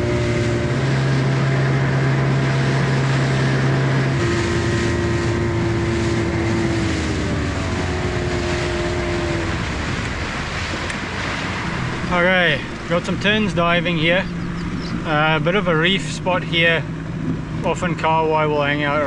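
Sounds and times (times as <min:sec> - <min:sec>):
outboard motor running: 0:00.0 - 0:19.0
water rushing past hull: 0:00.0 - 0:19.0
wind noise: 0:04.1 - 0:17.6.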